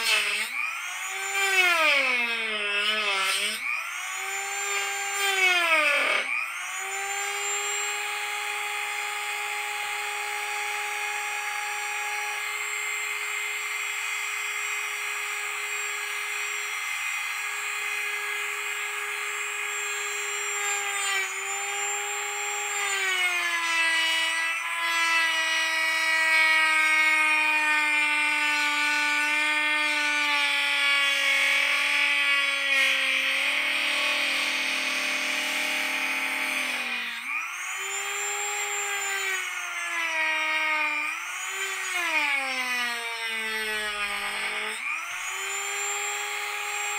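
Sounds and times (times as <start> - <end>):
rotary tool cutting plastic: 0.0 - 46.9.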